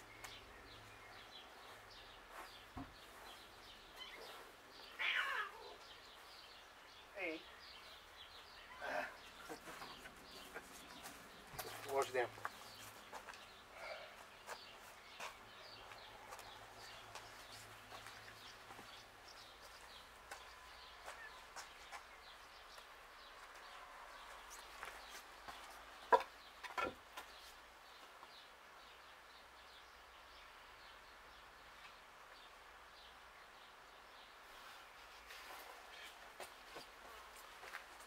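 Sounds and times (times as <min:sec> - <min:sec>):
small birds chirping: 0:00.0 - 0:38.0.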